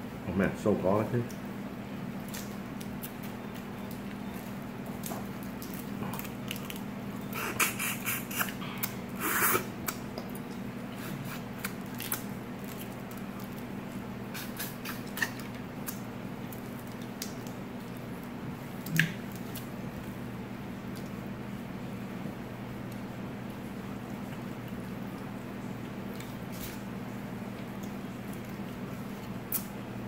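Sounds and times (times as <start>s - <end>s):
steady low hum: 0.0s - 30.0s
crawfish shells cracking: 2.2s - 6.9s, 11.6s - 13.7s.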